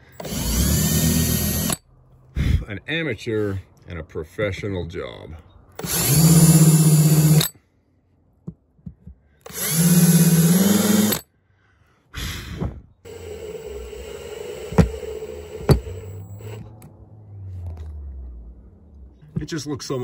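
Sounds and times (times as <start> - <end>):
power drill motor whine: 0.0 - 1.8, 5.8 - 7.5, 9.4 - 11.2, 13.1 - 16.8.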